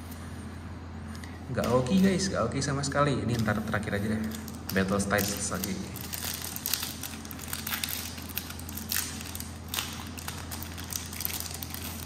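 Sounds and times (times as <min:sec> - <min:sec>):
foil wrapper crinkling: 0:03.3 - 0:12.0.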